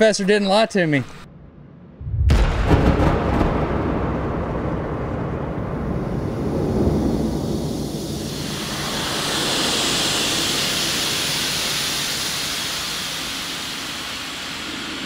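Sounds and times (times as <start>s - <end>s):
slowed rifle shot rushing hiss: 6.3s - 15.0s.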